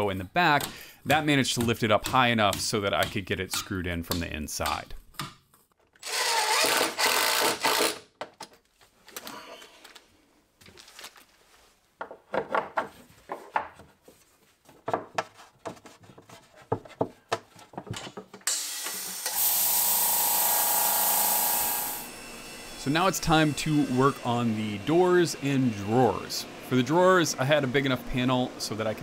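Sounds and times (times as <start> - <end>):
cordless drill driving a screw: 6.0 - 8.0
handling clicks and knocks: 14.7 - 18.5
air compressor hissing: 18.8 - 28.4.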